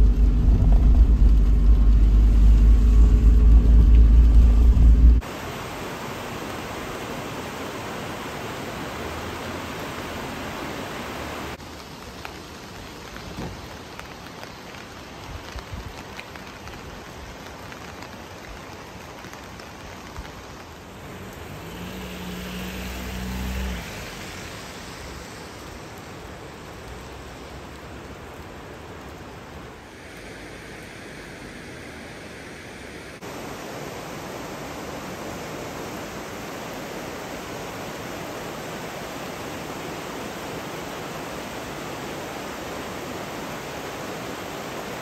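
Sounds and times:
low hum: 0:00.0 - 0:05.2
steady rain: 0:00.0 - 0:45.0.

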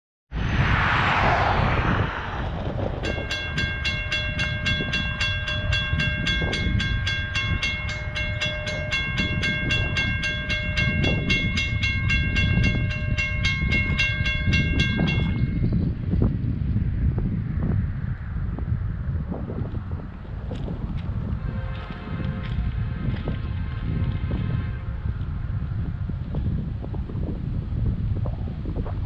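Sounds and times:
railroad crossing bell ringing: 0:03.0 - 0:15.9.

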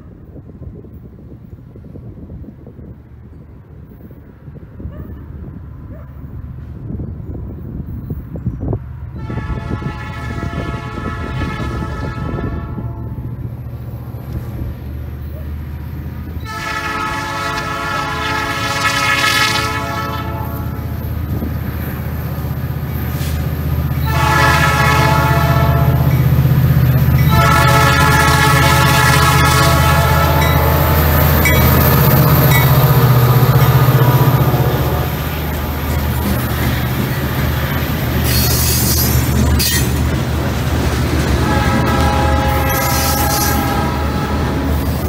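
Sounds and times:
locomotive engine rumbling: 0:00.0 - 0:45.0
locomotive horn blasts: 0:09.2 - 0:13.3, 0:16.4 - 0:21.1, 0:23.9 - 0:26.3, 0:27.2 - 0:31.7, 0:41.2 - 0:44.8
train wheels clattering: 0:30.4 - 0:33.8, 0:35.5 - 0:43.8.

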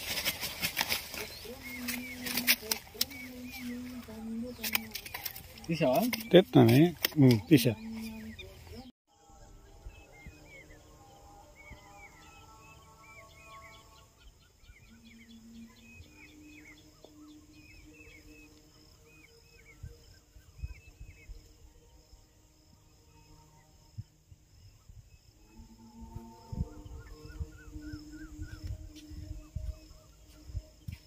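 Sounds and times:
birds chirping: 0:00.0 - 0:31.0
wind rumble on microphone: 0:19.4 - 0:22.8, 0:23.6 - 0:31.0.

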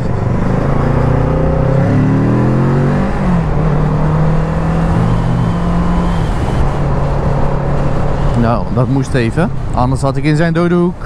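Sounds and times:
motorcycle engine accelerating: 0:00.0 - 0:08.5.

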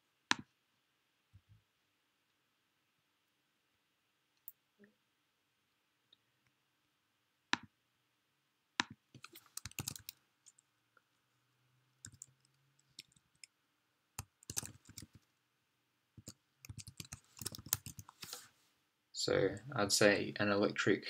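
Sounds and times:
typing on keyboard: 0:08.8 - 0:10.6, 0:12.0 - 0:13.5, 0:14.2 - 0:15.2, 0:16.2 - 0:18.2.

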